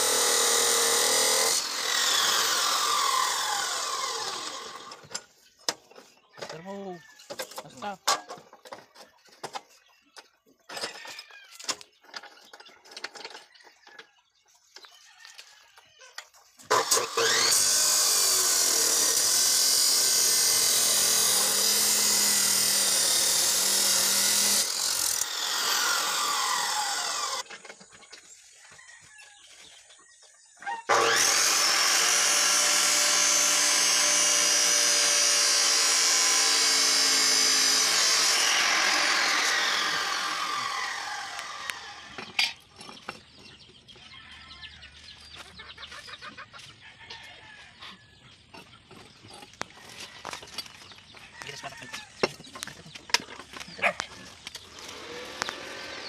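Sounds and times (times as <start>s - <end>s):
chop saw cutting steel: 0.0s - 5.3s, 16.6s - 27.6s, 30.8s - 42.6s, 53.8s - 56.0s.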